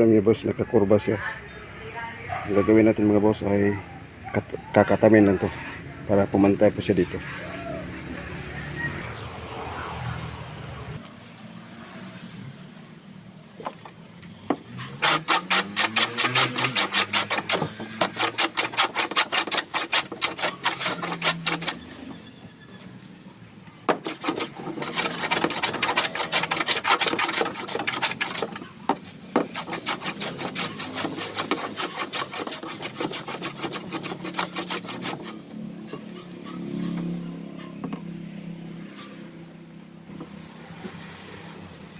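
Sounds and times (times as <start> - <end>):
hand plane shaving wood: 14.7 - 22.2, 23.9 - 36.3.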